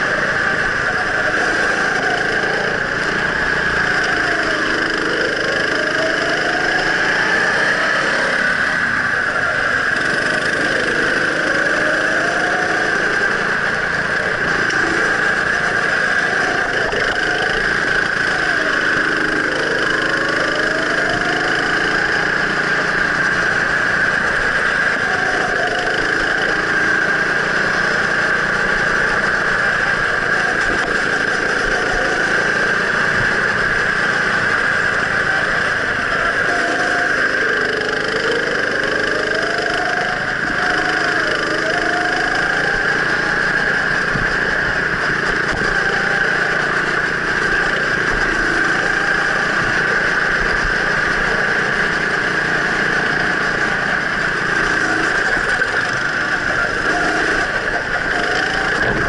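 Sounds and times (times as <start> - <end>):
go-kart engine revving: 0.0 - 59.0.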